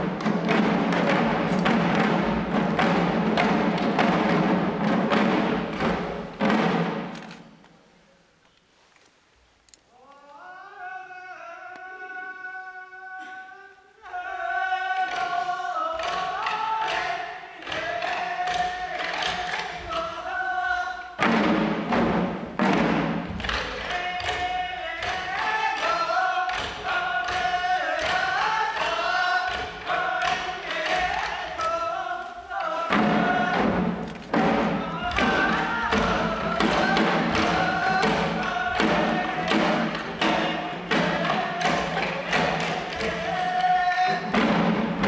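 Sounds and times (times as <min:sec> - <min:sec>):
small drums beating: 0:00.0 - 0:07.4, 0:14.0 - 0:45.0
group singing long held notes: 0:10.3 - 0:21.9, 0:22.9 - 0:45.0.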